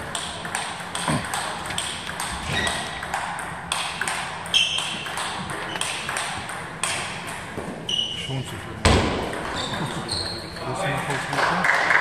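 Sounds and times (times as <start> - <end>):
table tennis balls clicking: 0.0 - 7.7.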